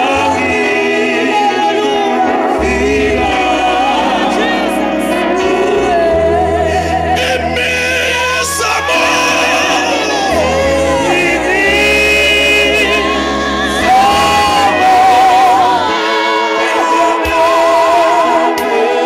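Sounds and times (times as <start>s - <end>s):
voices singing gospel: 0.0s - 19.0s
low bass accompaniment: 2.3s - 16.0s.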